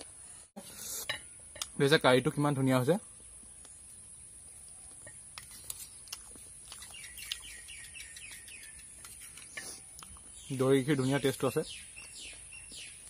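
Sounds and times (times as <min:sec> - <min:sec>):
bird chirping: 0:03.0 - 0:13.0.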